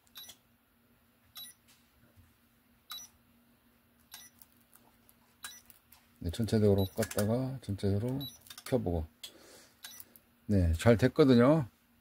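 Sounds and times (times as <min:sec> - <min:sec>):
touch switch short beeps: 0:00.2 - 0:00.4, 0:01.4 - 0:01.6, 0:02.9 - 0:03.1, 0:04.1 - 0:04.3, 0:06.8 - 0:07.0, 0:09.8 - 0:10.0.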